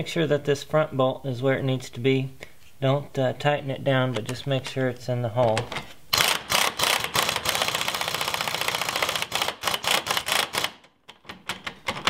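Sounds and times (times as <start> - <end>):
impact wrench rattling: 5.5 - 12.0.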